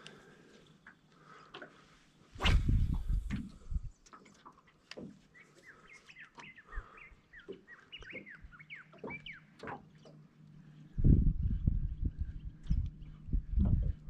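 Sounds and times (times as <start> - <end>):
birds chirping and whistling: 5.4 - 9.5.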